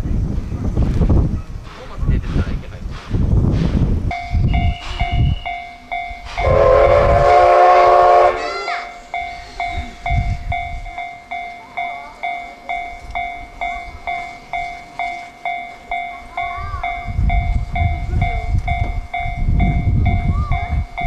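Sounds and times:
approaching train rumble: 0.0 - 21.0
level crossing warning bell: 4.1 - 21.0.

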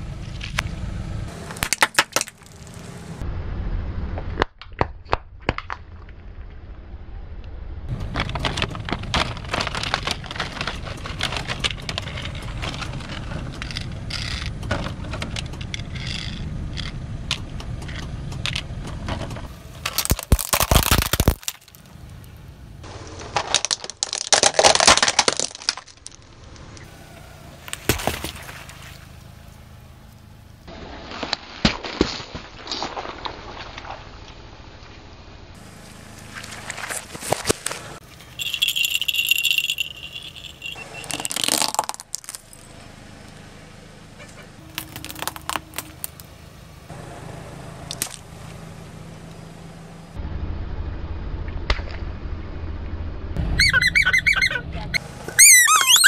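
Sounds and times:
tyre crushing plastic objects: 8.1 - 13.2, 19.8 - 21.9, 23.0 - 26.2, 41.1 - 42.5, 44.7 - 46.3.

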